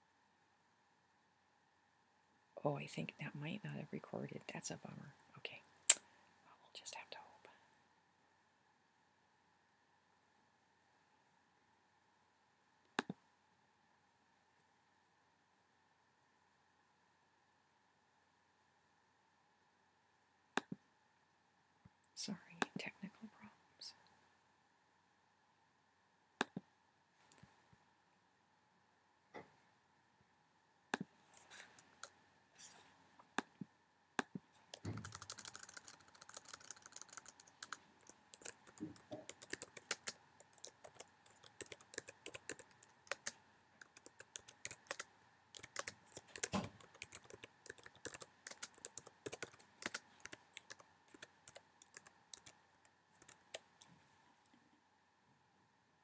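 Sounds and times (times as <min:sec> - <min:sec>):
computer keyboard typing: 0:34.2 - 0:52.6, 0:53.2 - 0:53.7.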